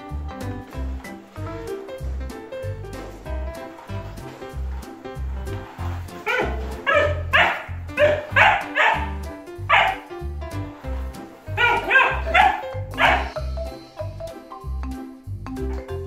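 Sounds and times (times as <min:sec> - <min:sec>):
background music with beat: 0:00.0 - 0:16.0
puppy barking: 0:06.2 - 0:10.1, 0:11.5 - 0:13.4.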